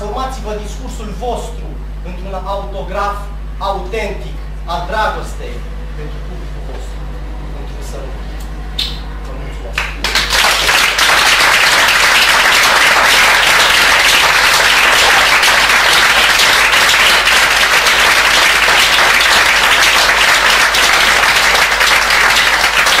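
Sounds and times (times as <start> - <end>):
audience applauding: 9.8 - 23.0.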